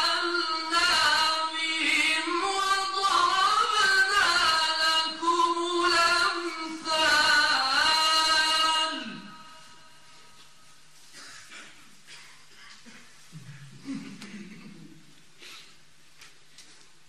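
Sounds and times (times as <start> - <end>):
man chanting melodically: 0.0 - 9.8.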